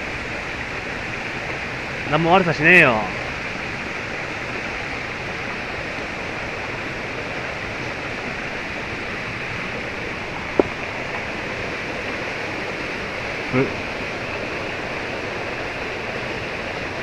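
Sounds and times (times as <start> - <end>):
rushing mountain stream: 0.0 - 17.0.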